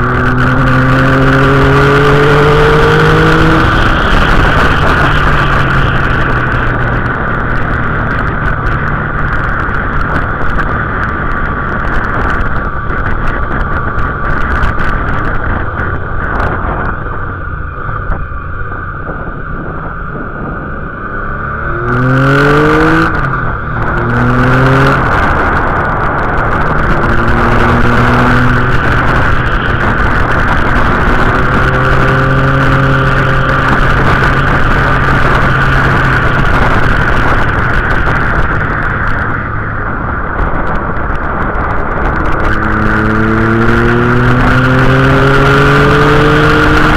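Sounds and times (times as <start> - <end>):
motorcycle engine: 0.0 - 46.9
wind rush: 0.0 - 46.9.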